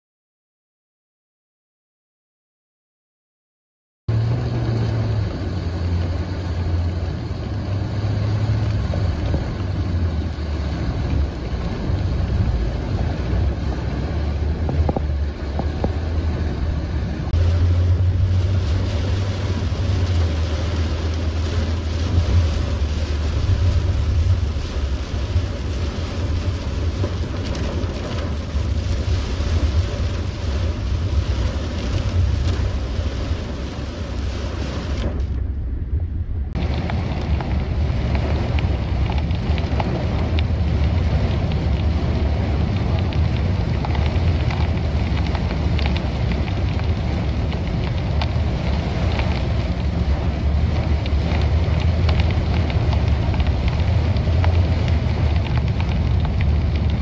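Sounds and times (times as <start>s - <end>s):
heavy rain on car windshield: 4.1s - 35.5s, 36.3s - 57.0s
moving car rumble: 4.1s - 57.0s.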